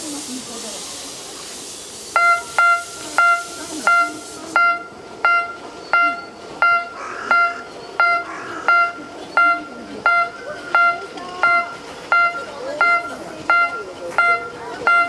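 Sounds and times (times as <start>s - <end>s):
steam hissing: 0.0s - 6.6s
railway crossing warning beeps: 2.1s - 15.0s.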